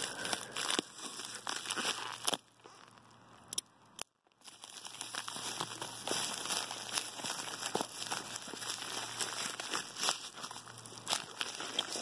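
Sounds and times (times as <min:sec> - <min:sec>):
plastic envelope crinkling and tearing: 0:00.0 - 0:03.1, 0:04.4 - 0:12.0.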